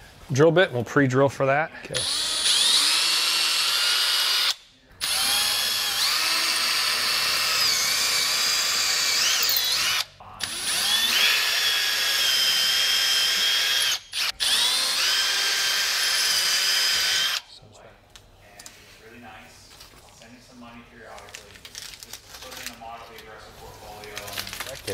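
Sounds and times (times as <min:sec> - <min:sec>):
cordless drill whining: 0:02.0 - 0:17.5.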